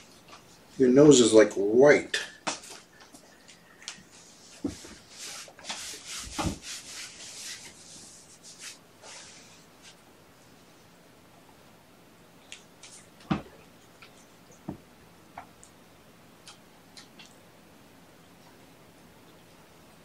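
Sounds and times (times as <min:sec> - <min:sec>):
rubbing and scratching: 0:04.1 - 0:10.0.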